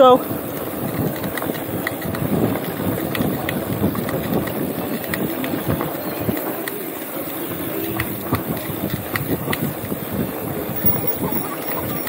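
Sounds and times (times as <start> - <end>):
bike rattling over bumps: 0.0 - 12.0
bike tyres on dirt road: 0.0 - 12.0
wind noise: 0.2 - 6.4.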